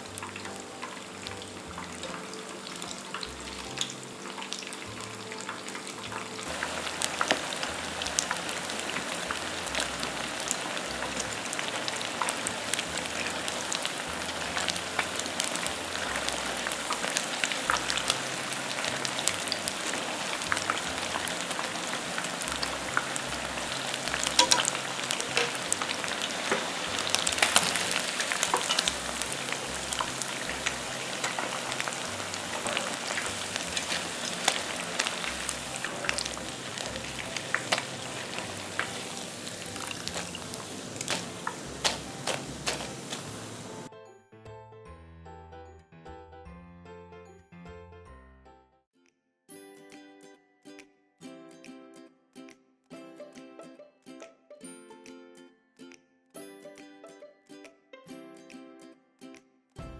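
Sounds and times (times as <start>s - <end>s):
chicken deep-frying in oil: 0.0s - 43.9s.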